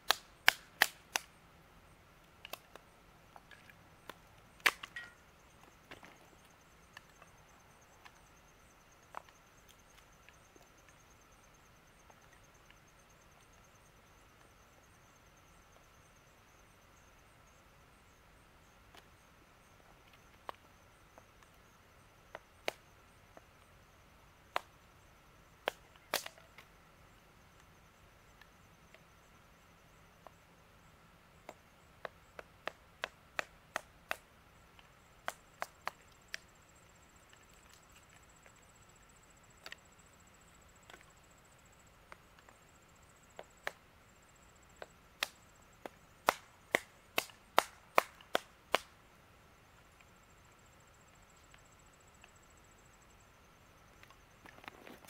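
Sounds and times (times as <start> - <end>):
kindling being chopped: 25.7 - 26.4.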